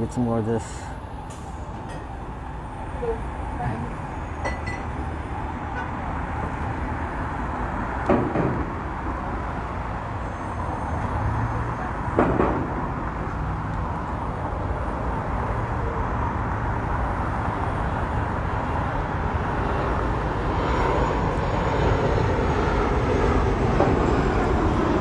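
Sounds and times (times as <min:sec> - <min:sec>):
street traffic: 0:00.0 - 0:25.0
sharp knocks: 0:12.2 - 0:12.8.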